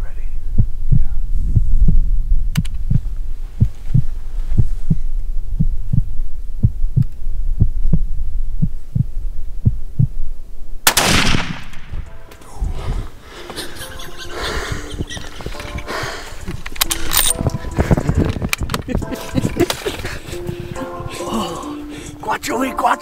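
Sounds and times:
heartbeat thumps: 0:00.4 - 0:10.3, 0:14.3 - 0:21.0
rifle shot: 0:10.8 - 0:12.1.

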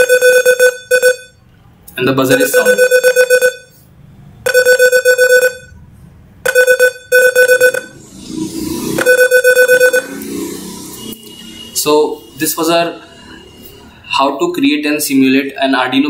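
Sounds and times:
pulsing alarm beeps: 0:00.0 - 0:01.4, 0:02.3 - 0:03.8, 0:04.5 - 0:05.8, 0:06.5 - 0:08.1, 0:09.0 - 0:12.4.

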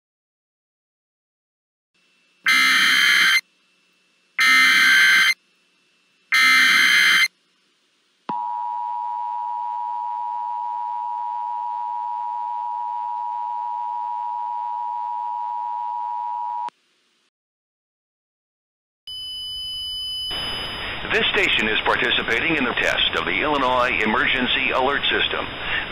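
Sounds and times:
data bursts: 0:02.5 - 0:03.4, 0:04.4 - 0:05.4, 0:06.3 - 0:07.3
two-tone attention signal: 0:02.5 - 0:03.4, 0:04.4 - 0:05.4, 0:06.3 - 0:07.3.

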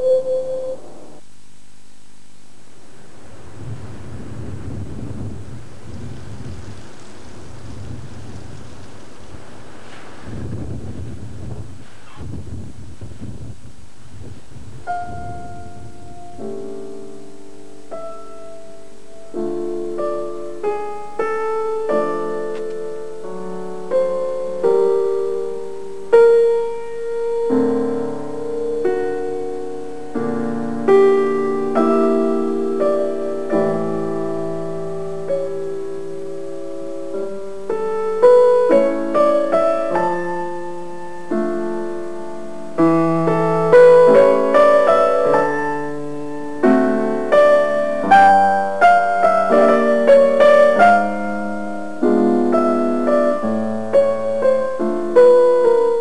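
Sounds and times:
slow piano music: 0:00.0 - 0:01.2, 0:14.4 - 0:56.0.

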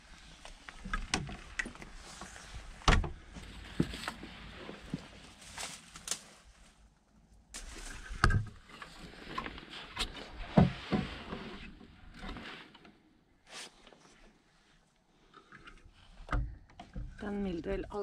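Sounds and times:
dry grass rustling: 0:00.0 - 0:12.7.

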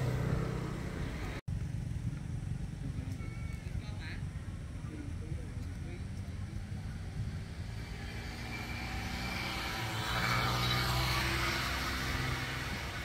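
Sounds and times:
vehicle engine passing by: 0:00.0 - 0:01.4, 0:05.9 - 0:13.0.

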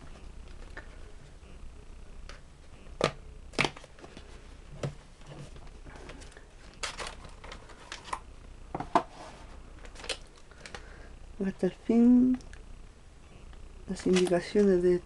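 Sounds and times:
cardboard snapping and rustling: 0:06.8 - 0:08.2.

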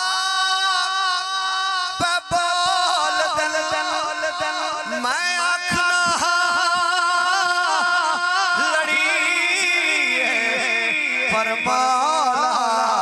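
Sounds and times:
man singing over loudspeakers: 0:00.0 - 0:13.0.

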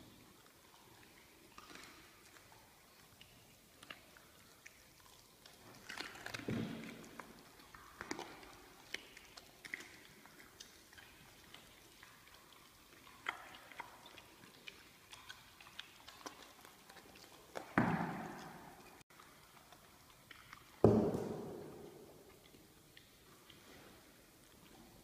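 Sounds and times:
cubs chewing: 0:00.1 - 0:25.0.

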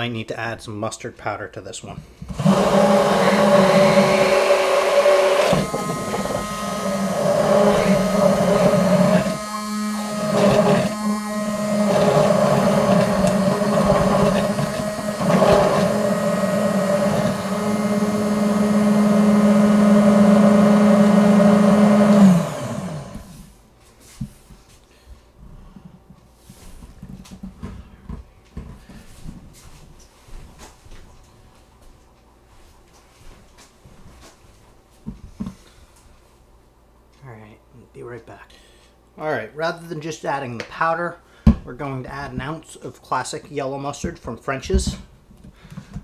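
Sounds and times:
stick blender motor whirring: 0:02.3 - 0:23.4.

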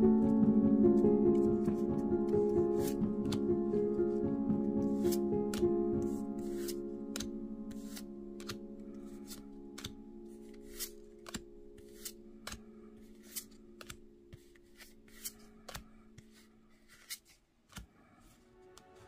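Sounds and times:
faint background music: 0:00.0 - 0:19.0
trading cards snapping: 0:06.5 - 0:08.6, 0:09.2 - 0:10.0, 0:10.6 - 0:12.6.

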